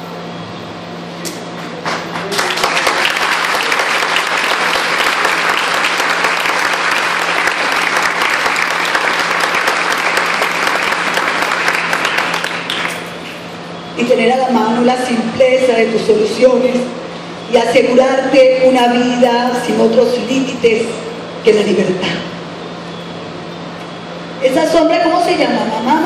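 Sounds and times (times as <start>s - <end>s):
audience applauding: 1.7s - 13.3s.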